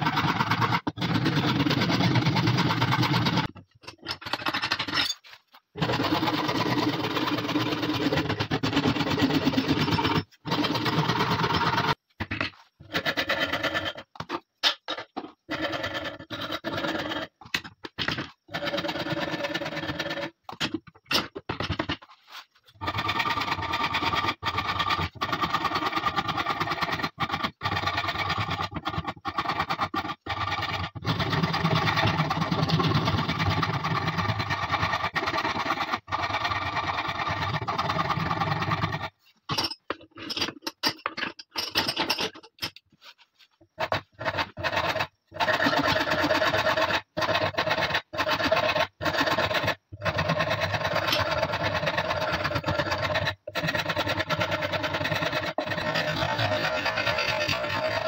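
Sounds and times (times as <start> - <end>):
wood rasp scraping wood: 43.8 - 58.0.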